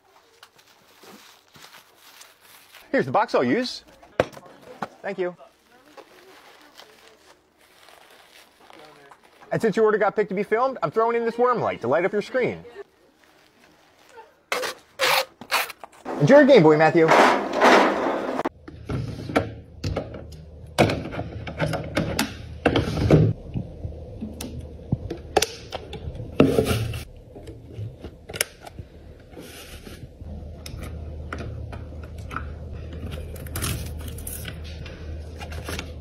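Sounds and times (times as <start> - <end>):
packaging rustling: 0.0 - 3.0, 5.4 - 9.6
low steady hum: 18.5 - 36.0.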